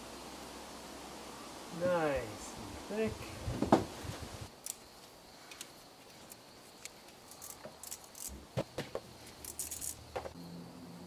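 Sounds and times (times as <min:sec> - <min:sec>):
tools clicking and clinking: 0:06.3 - 0:08.4, 0:09.4 - 0:10.3.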